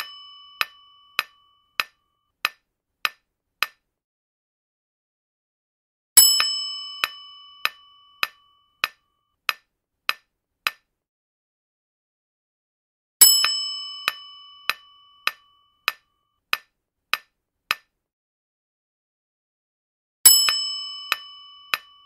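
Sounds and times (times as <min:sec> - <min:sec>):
bell-like ding: 0:00.0 - 0:02.0, 0:06.2 - 0:09.2, 0:13.2 - 0:16.2, 0:20.3 - 0:22.0.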